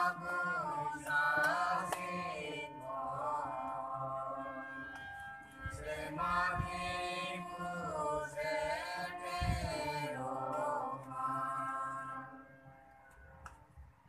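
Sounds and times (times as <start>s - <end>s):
congregation singing a hymn: 0.0s - 5.0s, 5.6s - 12.5s.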